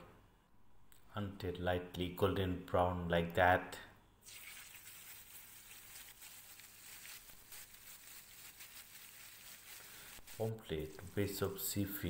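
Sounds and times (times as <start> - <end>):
fish sizzling in hot oil: 4.2 - 11.3.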